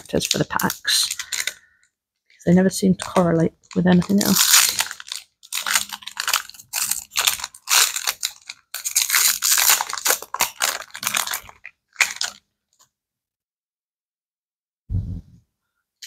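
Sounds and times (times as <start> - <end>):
foil pack tearing and crinkling: 0.0 - 1.7, 3.0 - 12.4.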